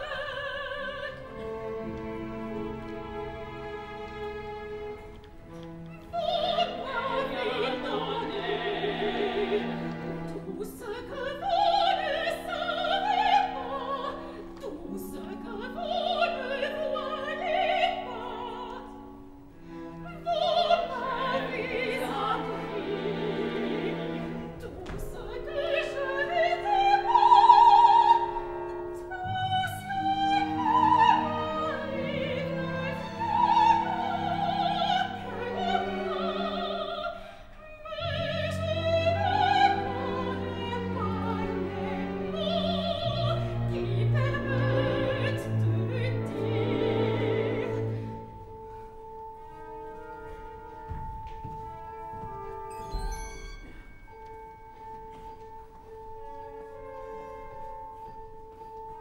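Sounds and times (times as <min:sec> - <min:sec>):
woman singing operatically: 0:00.0 - 0:01.4, 0:06.0 - 0:19.0, 0:20.0 - 0:47.9
orchestral strings: 0:00.0 - 0:59.0.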